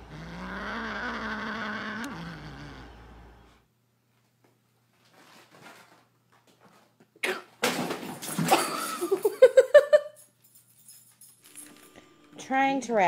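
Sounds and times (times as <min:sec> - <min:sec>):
person laughing hard: 0:08.5 - 0:10.2.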